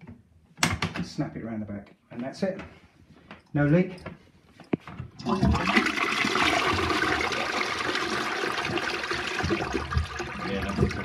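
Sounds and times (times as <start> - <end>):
water rushing into toilet bowl: 5.2 - 11.0.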